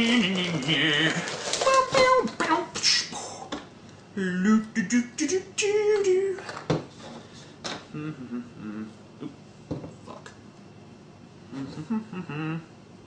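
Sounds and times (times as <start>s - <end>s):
man making beatbox mouth sounds: 2.8s - 3.3s, 11.5s - 12.7s.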